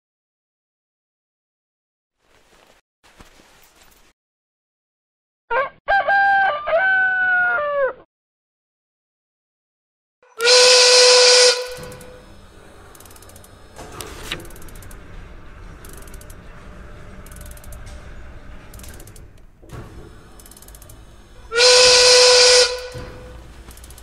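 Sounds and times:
rooster crowing: 5.5 - 8.0
steam whistle blowing: 10.4 - 12.3, 21.4 - 23.4
machinery gears clattering: 11.6 - 24.0.

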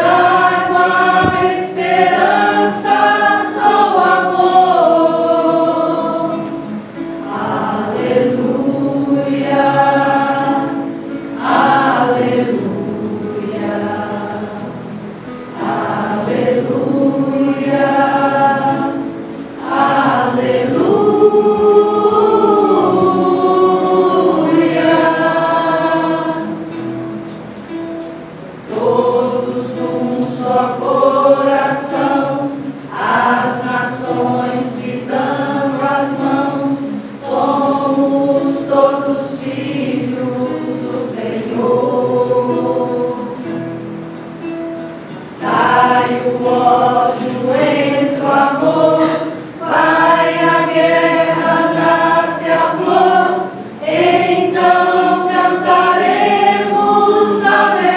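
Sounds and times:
mixed choir singing: 0.0 - 27.8, 28.6 - 57.9.

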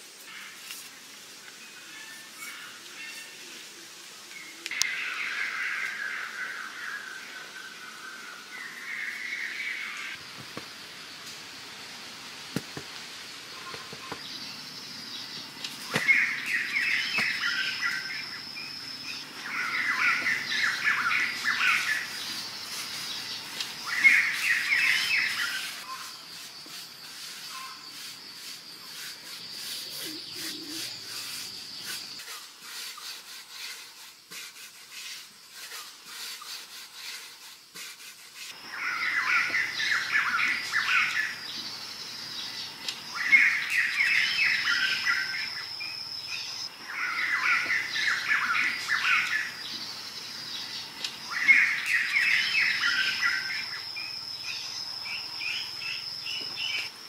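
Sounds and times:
high-pitched whine: 13.2 - 26.5
birds chattering song: 13.5 - 37.8, 38.6 - 56.9.

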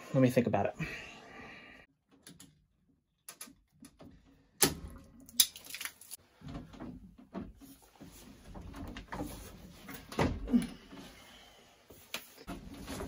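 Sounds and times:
light clicks of plastic pipes: 3.2 - 10.0.

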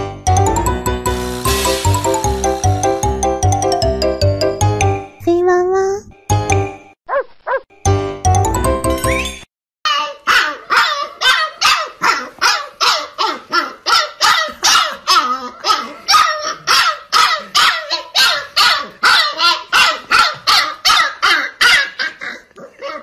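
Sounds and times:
puppy barking: 7.1 - 7.6, 9.9 - 23.0.

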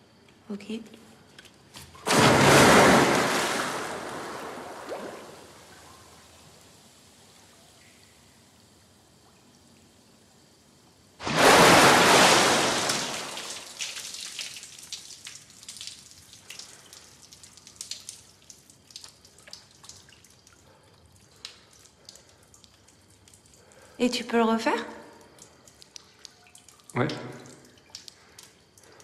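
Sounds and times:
water pattering and dripping: 0.1 - 29.0
big splash in swimming pool: 2.0 - 5.6, 11.2 - 14.1.

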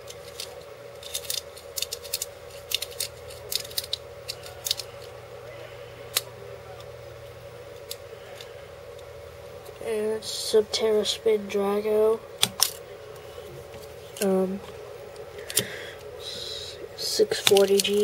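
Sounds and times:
steady low hum: 0.0 - 18.0
plastic toy balls clicking: 17.3 - 18.0.

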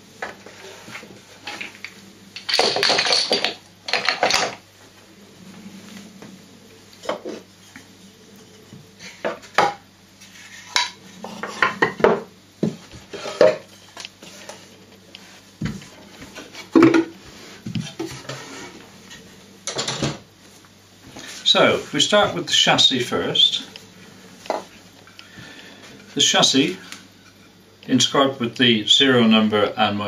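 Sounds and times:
wooden pieces knocking on table: 1.5 - 4.6.

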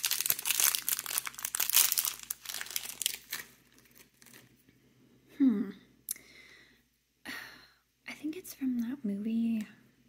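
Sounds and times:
crinkly packaging crackling: 0.0 - 4.6.

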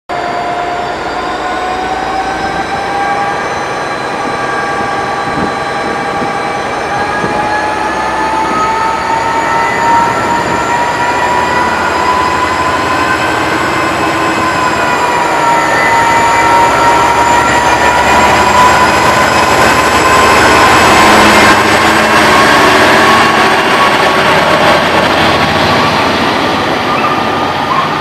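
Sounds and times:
diesel locomotive engine whining: 0.1 - 28.0.

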